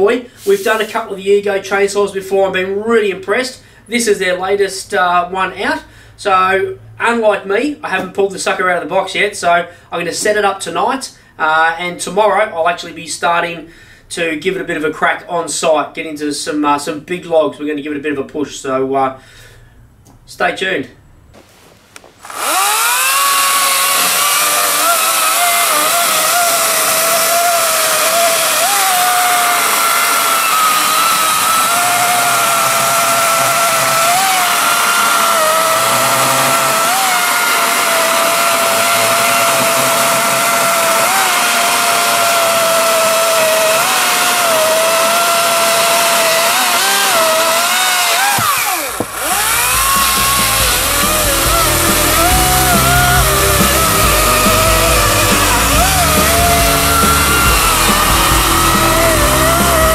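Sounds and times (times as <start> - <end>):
chainsaw cutting through log: 0.4 - 1.0, 22.2 - 59.9.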